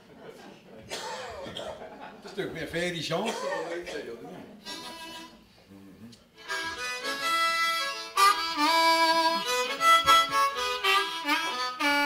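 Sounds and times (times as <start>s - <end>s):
blues harmonica playing: 4.6s - 5.5s, 6.4s - 12.0s.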